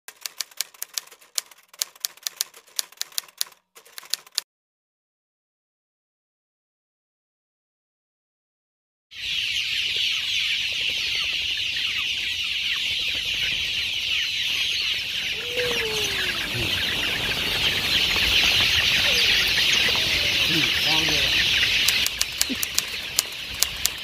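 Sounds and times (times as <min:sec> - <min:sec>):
chicks peeping chorus: 0:09.2 - 0:24.0
lower call sliding downward: 0:15.3 - 0:22.6.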